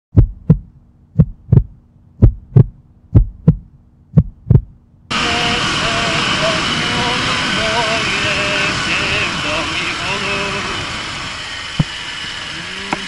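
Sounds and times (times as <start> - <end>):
heartbeat thumps: 0.1 - 5.1
loud wind: 5.1 - 13.0
motorcycle engine: 5.1 - 13.0.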